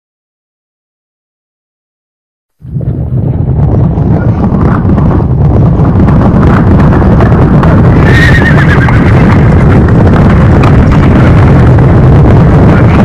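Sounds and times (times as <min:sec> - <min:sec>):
horses galloping: 0:02.7 - 0:13.0
horse whinnying: 0:08.0 - 0:09.1.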